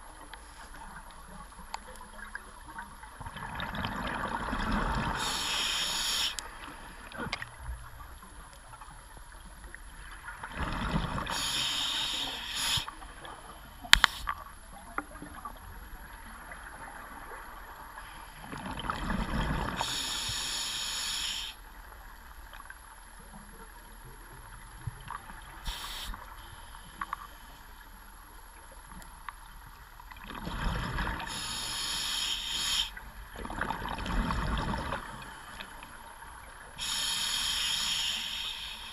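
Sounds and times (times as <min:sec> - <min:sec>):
diver breathing through regulator: 0:05.1 - 0:06.7, 0:11.2 - 0:13.0, 0:19.7 - 0:21.6, 0:31.2 - 0:33.0, 0:36.8 - 0:38.9
sharp click: 0:13.9 - 0:14.2.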